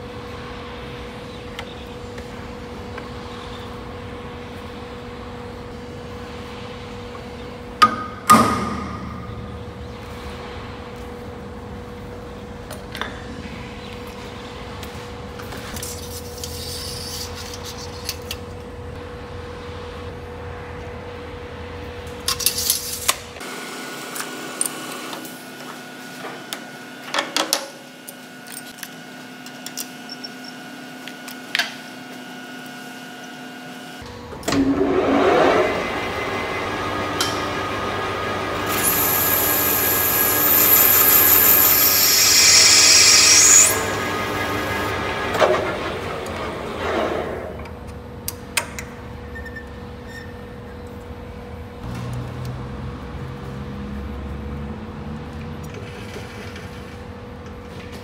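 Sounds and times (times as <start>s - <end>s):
lathe tool cutting metal: 34.6s - 46.8s
lathe running: 34.6s - 47.5s.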